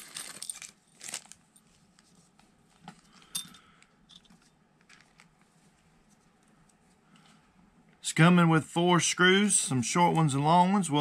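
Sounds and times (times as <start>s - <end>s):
small metal parts clinking: 0.0s - 1.3s, 3.2s - 5.0s.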